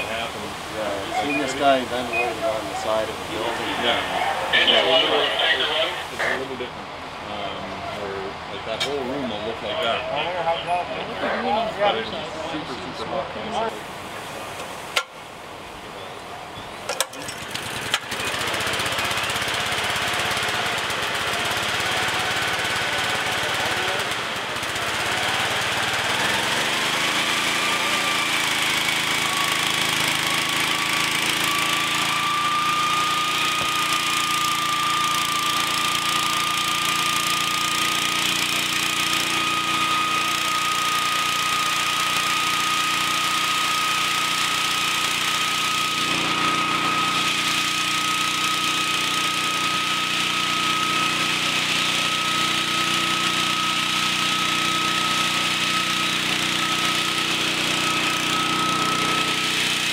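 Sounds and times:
small gasoline engine running: 0:00.0 - 0:06.6, 0:16.9 - 0:59.9.

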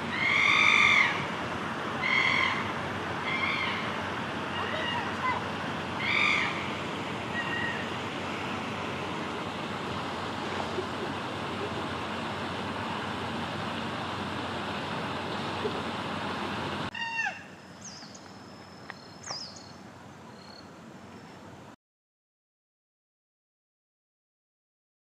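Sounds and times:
high falling bird calls: 0:00.0 - 0:01.4, 0:02.0 - 0:08.7, 0:16.9 - 0:21.4.

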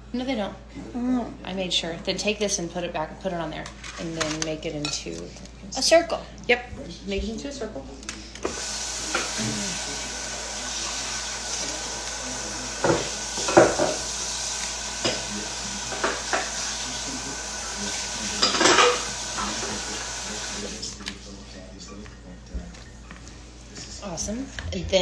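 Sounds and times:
dishes and utensils clattering: 0:12.8 - 0:14.1, 0:15.0 - 0:16.6, 0:18.2 - 0:20.0.

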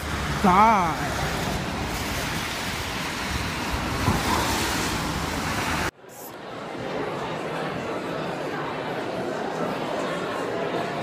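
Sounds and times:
traffic hissing on wet pavement: 0:00.0 - 0:05.9.

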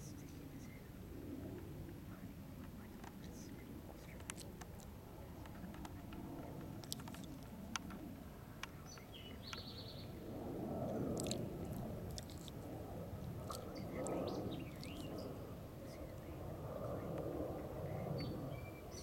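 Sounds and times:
songbirds chirping: 0:00.0 - 0:19.0
soft clicks: 0:02.6 - 0:09.7.

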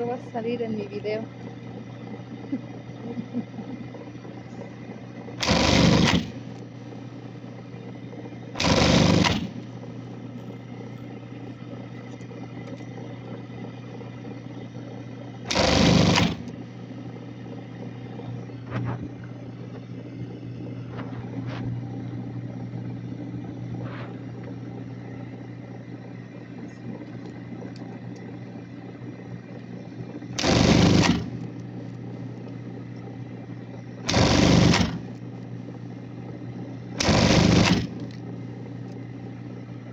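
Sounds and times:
sewing machine motor humming: 0:00.0 - 0:18.8, 0:26.1 - 0:39.9
sewing machine stitching: 0:05.4 - 0:06.5, 0:08.6 - 0:09.6, 0:15.5 - 0:16.5, 0:30.4 - 0:31.5, 0:34.0 - 0:35.2, 0:37.0 - 0:38.2.

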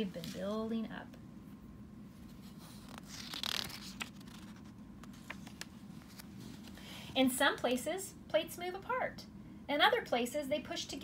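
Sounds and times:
page turning swish: 0:02.3 - 0:06.7
paper clicks and rustles: 0:02.5 - 0:06.7.

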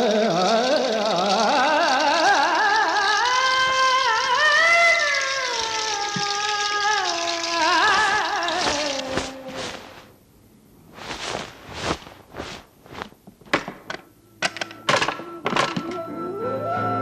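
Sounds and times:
irregular thuds and knocks: 0:11.0 - 0:14.0
music: 0:14.2 - 0:17.0.

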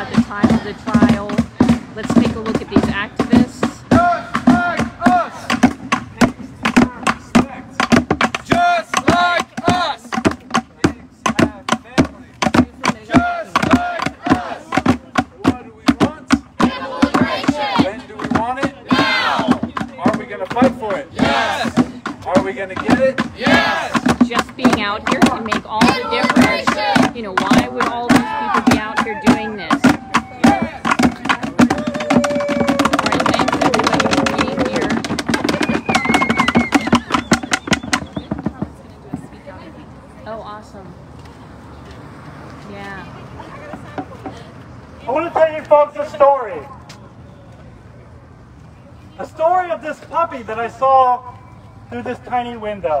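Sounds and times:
voices chanting: 0:00.0 - 0:38.4
drums beating quick rhythm: 0:00.0 - 0:39.3.

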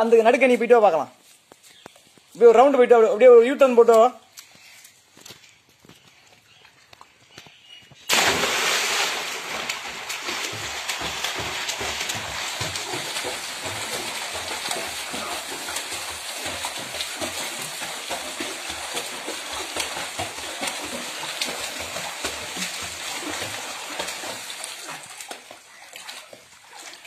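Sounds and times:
swimming splashes and sloshing: 0:04.3 - 0:27.0
body splashing into water: 0:08.0 - 0:27.0.

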